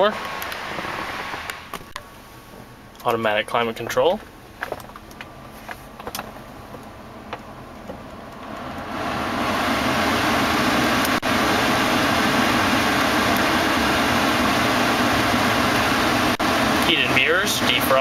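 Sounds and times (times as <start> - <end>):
blower fan rushing air: 0.0 - 18.0
engine idling: 0.0 - 18.0.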